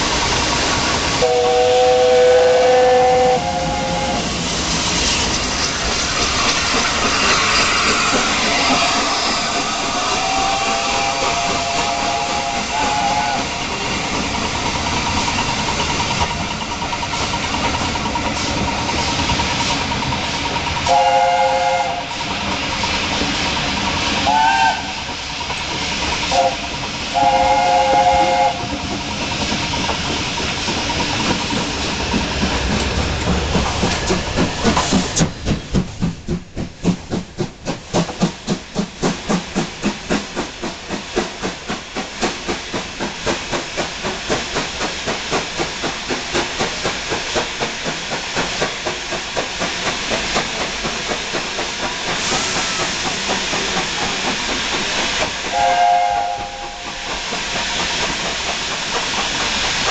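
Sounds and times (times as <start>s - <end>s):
steam hissing: 0.0s - 59.9s
steam locomotive chuffing: 0.0s - 59.9s
steam locomotive whistle: 1.2s - 4.3s, 7.9s - 13.6s, 20.8s - 22.1s, 24.2s - 25.1s, 26.3s - 28.7s, 55.4s - 57.2s.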